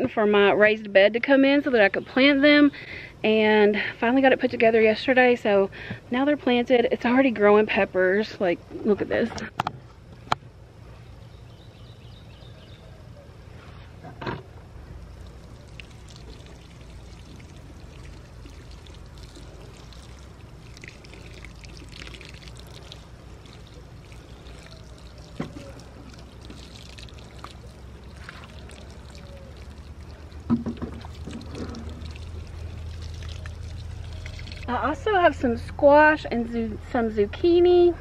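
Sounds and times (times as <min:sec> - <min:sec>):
low steady hum: 0:00.0 - 0:38.0
water sprinkling from watering can: 0:15.2 - 0:34.8.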